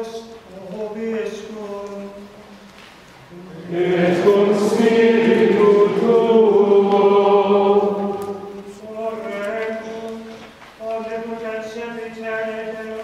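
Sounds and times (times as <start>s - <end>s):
choir singing plainchant: 3.3s - 9.8s.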